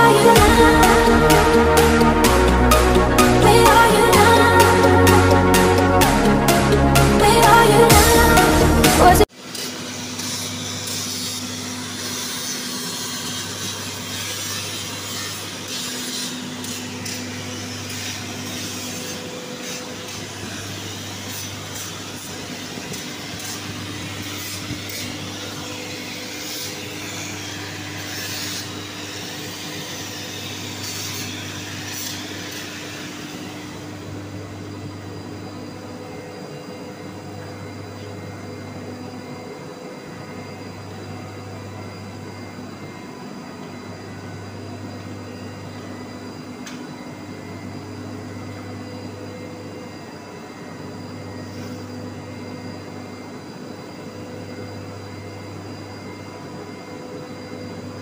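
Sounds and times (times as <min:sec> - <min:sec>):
welding arc hissing: 0:00.0 - 0:34.1
machine hum with pulsing drone: 0:00.0 - 0:58.0.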